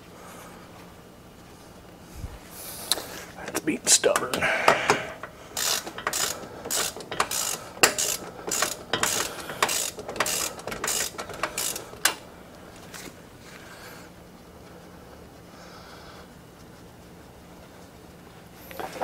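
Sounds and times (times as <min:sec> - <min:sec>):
ratchet clicking: 0:04.8 - 0:12.3.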